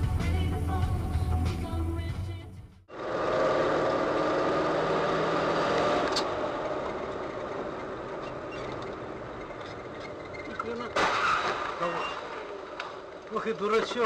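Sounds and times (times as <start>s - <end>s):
car engine running: 2.9s - 11.0s
tyre and road noise: 2.9s - 14.0s.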